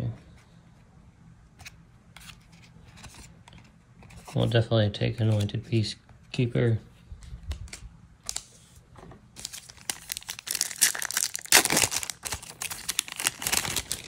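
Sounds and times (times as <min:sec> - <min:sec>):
foil wrapper tearing and crinkling: 0:09.4 - 0:14.0.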